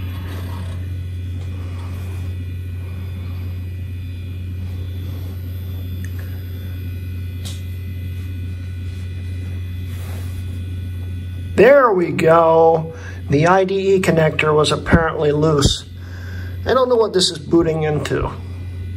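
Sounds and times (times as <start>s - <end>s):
computer fan and drives humming: 0.0s - 18.9s.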